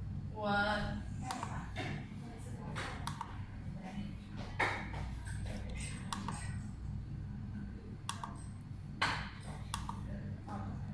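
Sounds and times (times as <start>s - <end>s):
steady low hum: 0.0s - 10.9s
computer mouse clicks: 1.2s - 1.6s, 2.9s - 3.3s, 5.6s - 6.5s, 8.1s - 8.5s, 9.5s - 10.0s.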